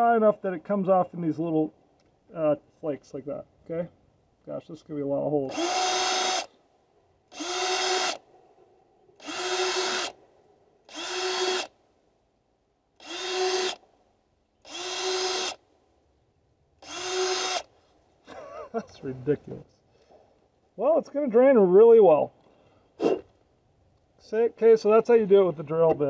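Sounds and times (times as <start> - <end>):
cordless drill boring clay: 5.5 - 6.5, 7.3 - 8.2, 9.2 - 10.2, 10.9 - 11.8, 13.0 - 13.8, 14.6 - 15.6, 16.8 - 17.7.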